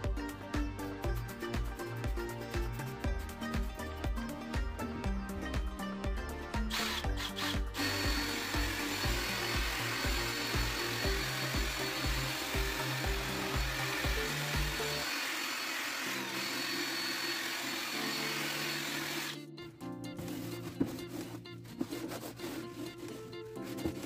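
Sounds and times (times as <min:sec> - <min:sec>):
drill scrubbing plastic with brush: 0:06.7 - 0:19.4, 0:20.2 - 0:24.0.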